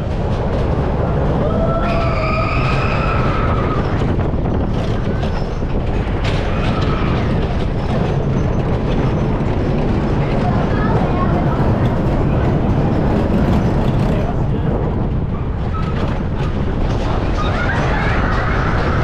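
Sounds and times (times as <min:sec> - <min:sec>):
roller coaster rumbling and clattering: 0:00.0 - 0:19.0
high wheel squeal: 0:01.8 - 0:04.1.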